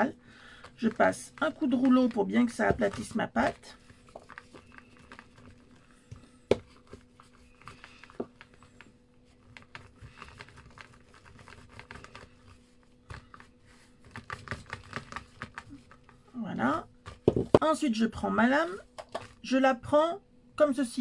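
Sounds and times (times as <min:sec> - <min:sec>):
faint steady hum: 0:00.0 - 0:21.0
rolling pin rubbing over paste: 0:00.7 - 0:16.3.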